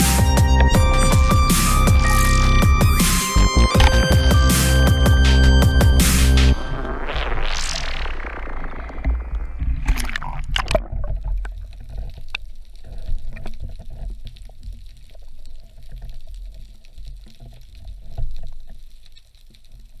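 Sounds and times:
water splashing: 0:07.8 - 0:16.7
faint underwater clicks and crackles: 0:08.7 - 0:20.0.

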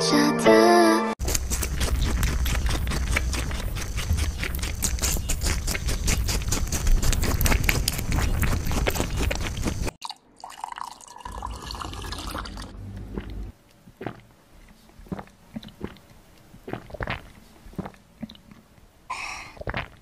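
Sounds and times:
rabbit licking: 0:01.2 - 0:09.9
rabbit crunching watermelon: 0:01.2 - 0:10.0.

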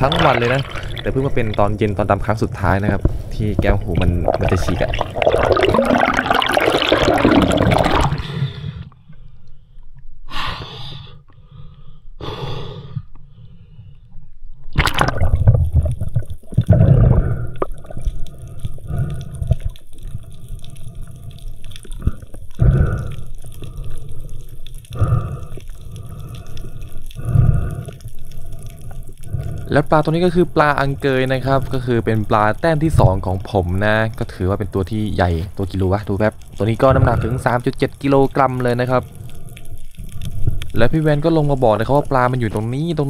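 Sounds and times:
muffled underwater bubbling: 0:00.0 - 0:08.4, 0:14.8 - 0:43.0.

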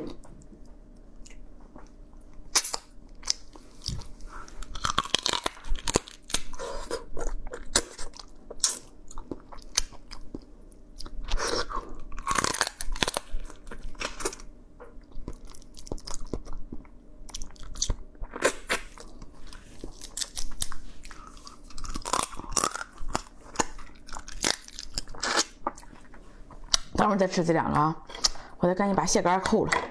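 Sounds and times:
crab shell crunching: 0:02.5 - 0:06.6, 0:07.3 - 0:14.5, 0:19.8 - 0:25.9.

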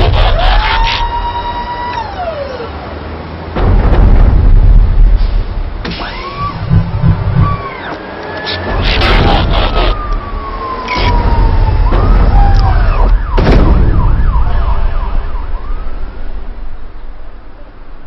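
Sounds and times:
mechanical whirs: 0:00.0 - 0:02.7, 0:05.8 - 0:13.9
low rumble: 0:03.6 - 0:07.8.

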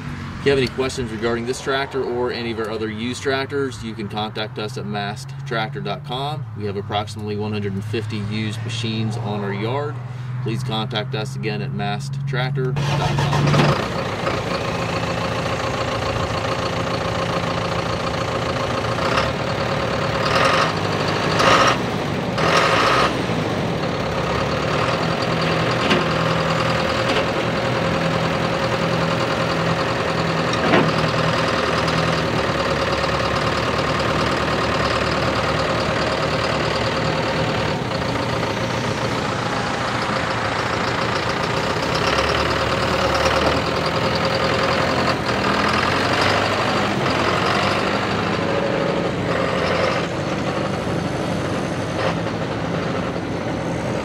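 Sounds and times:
constant whine: 0:00.0 - 0:54.0
tractor diesel engine running: 0:00.0 - 0:54.0.

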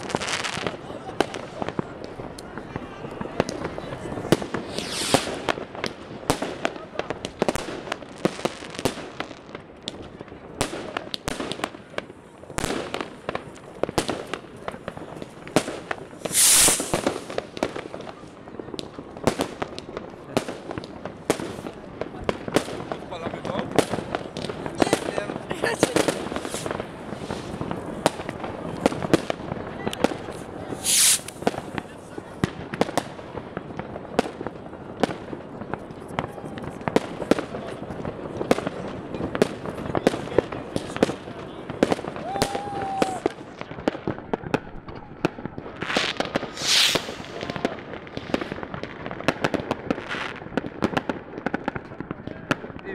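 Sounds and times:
fireworks bangs and pops: 0:00.0 - 0:52.9
firework hissing burst: 0:04.5 - 0:05.6, 0:16.2 - 0:17.4, 0:25.8 - 0:27.8, 0:30.7 - 0:31.7, 0:45.9 - 0:47.6.

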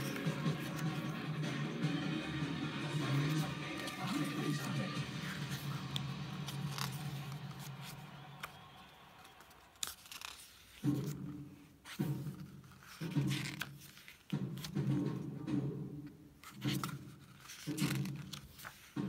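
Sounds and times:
pages being turned: 0:00.0 - 0:01.3, 0:02.9 - 0:14.9, 0:16.4 - 0:19.0
pages flicking over: 0:03.2 - 0:11.2.

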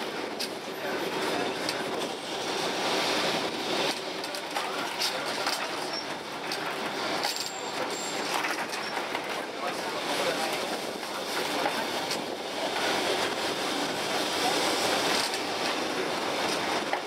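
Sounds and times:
tram rumbling on rails: 0:00.0 - 0:17.0
wheels clicking and clacking: 0:03.8 - 0:13.4.

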